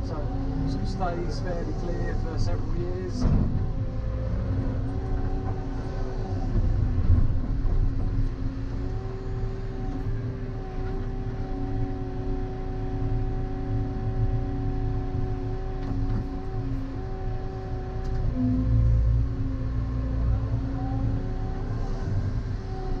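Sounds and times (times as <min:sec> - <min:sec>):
excavator engine and hydraulics: 0:00.0 - 0:23.0.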